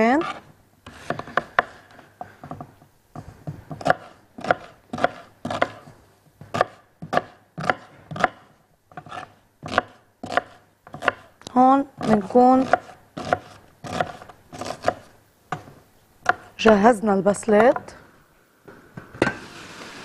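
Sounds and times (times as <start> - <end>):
knife chopping on plastic board: 2.5 - 11.3.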